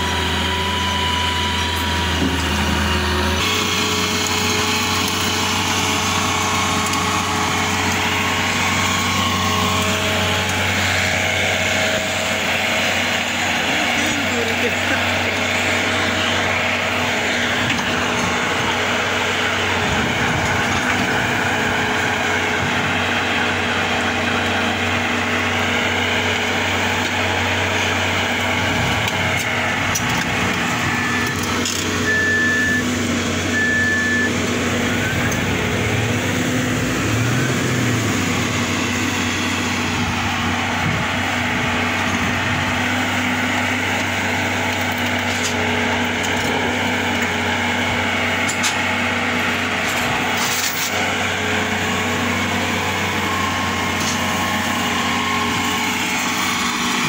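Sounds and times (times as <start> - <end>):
diesel engine droning: 0.0 - 57.0
short high beeps: 32.0 - 32.8, 33.5 - 34.4.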